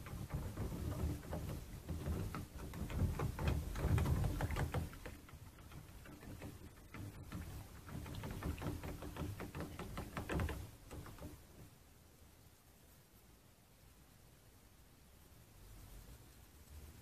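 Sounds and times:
water splashing in a tub: 0:00.0 - 0:11.6.

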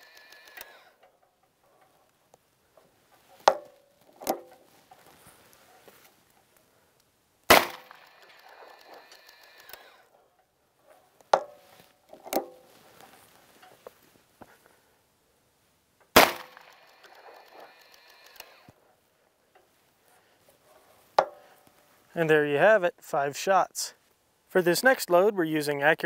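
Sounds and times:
revolver gunshots with echo: 0:07.5 - 0:09.0, 0:16.2 - 0:17.8.

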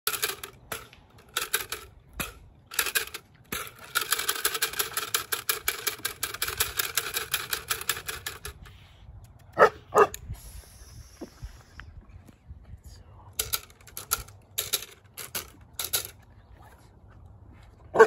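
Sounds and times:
clatter stick rattling: 0:00.1 - 0:08.7, 0:13.4 - 0:16.2
puppy barking: 0:09.6 - 0:10.2.

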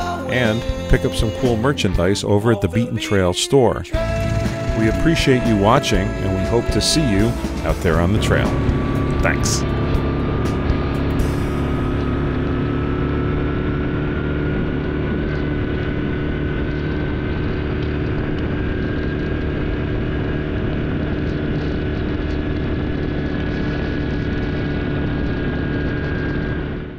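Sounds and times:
atv engine running: 0:04.0 - 0:26.9
thin whine: 0:04.0 - 0:26.9.

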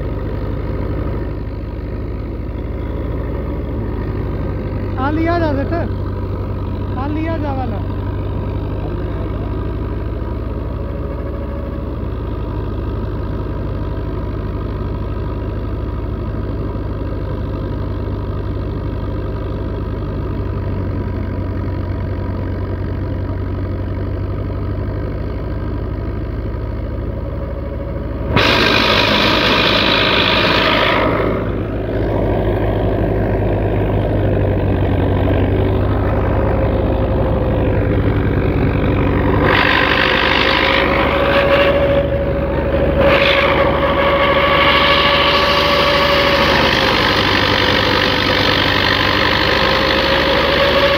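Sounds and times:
tractor diesel engine under load: 0:00.0 - 0:50.9
thresher churning: 0:27.9 - 0:50.9
loud rushing noise: 0:28.2 - 0:50.9.

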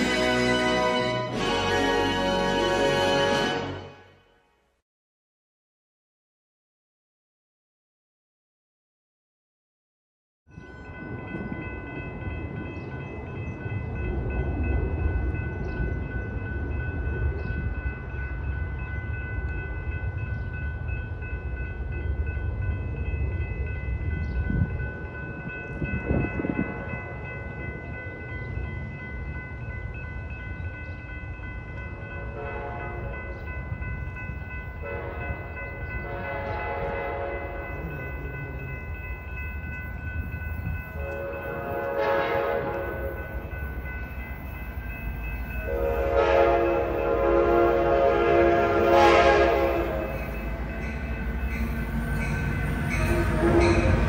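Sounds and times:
train rumbling: 0:00.0 - 0:04.2, 0:10.6 - 0:54.0
train air horn blasts: 0:00.0 - 0:04.3, 0:32.2 - 0:33.1, 0:34.8 - 0:37.7, 0:41.0 - 0:43.2, 0:45.6 - 0:50.2, 0:52.9 - 0:54.0
crossing bell ringing: 0:00.0 - 0:04.4, 0:10.5 - 0:54.0.

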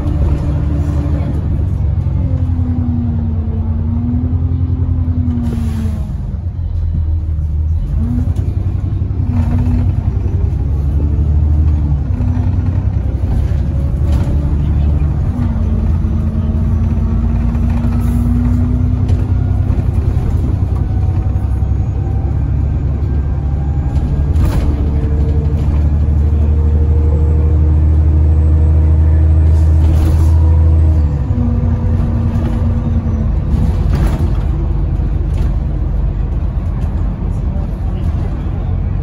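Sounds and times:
bus engine rumble and whine: 0:00.0 - 0:39.0.

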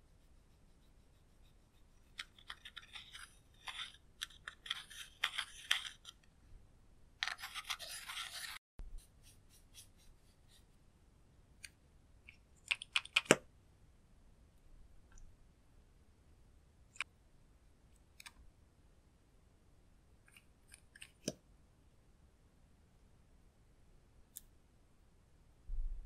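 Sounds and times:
plastic pick scraping eyeshadow: 0:02.0 - 0:06.2, 0:07.2 - 0:08.6.

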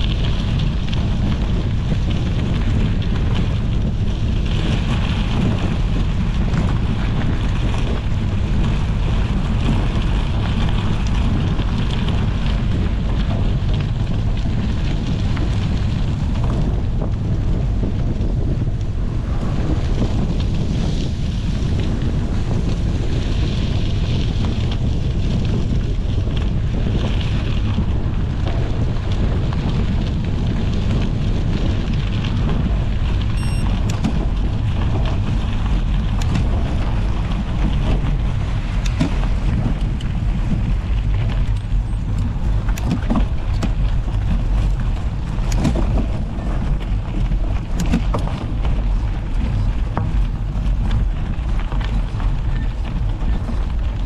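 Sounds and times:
wind buffeting microphone: 0:00.0 - 0:54.0
bike clicks and rattles: 0:19.3 - 0:54.0.

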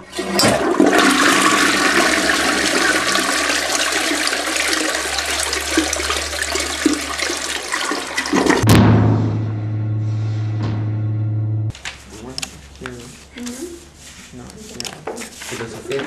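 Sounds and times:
toilet flushing: 0:00.0 - 0:08.6.

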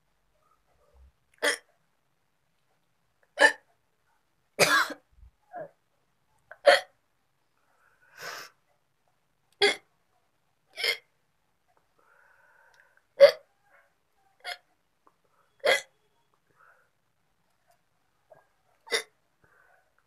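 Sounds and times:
woman hiccuping: 0:03.4 - 0:03.6, 0:06.6 - 0:06.9, 0:10.7 - 0:11.1, 0:13.2 - 0:13.5, 0:14.4 - 0:14.6, 0:15.6 - 0:15.9, 0:18.8 - 0:19.1.

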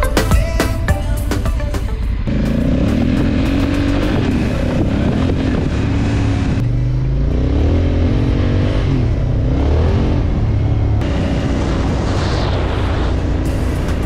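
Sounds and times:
motorcycle engine revving: 0:02.0 - 0:14.0
wind noise on microphone: 0:02.3 - 0:06.6, 0:11.0 - 0:14.0.

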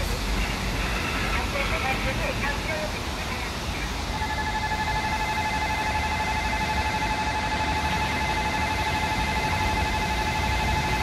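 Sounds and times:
level crossing warning bell: 0:03.8 - 0:11.0.

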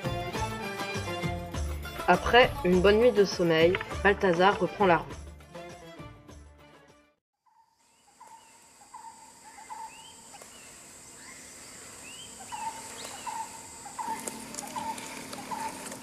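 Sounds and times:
bird chirping: 0:07.5 - 0:16.0
curving bird calls: 0:07.5 - 0:16.0.

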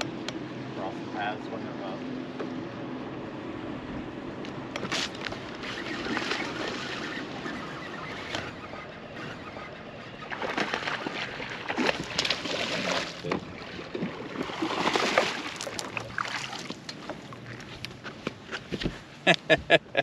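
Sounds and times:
fish thrashing and splashing: 0:04.9 - 0:08.2, 0:10.3 - 0:17.6.

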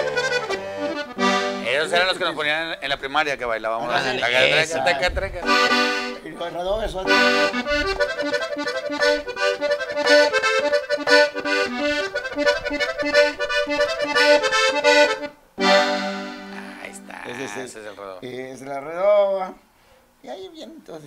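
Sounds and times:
button accordion melody: 0:00.0 - 0:02.4, 0:03.9 - 0:18.0
held accordion chord: 0:00.0 - 0:02.6, 0:03.9 - 0:18.0.

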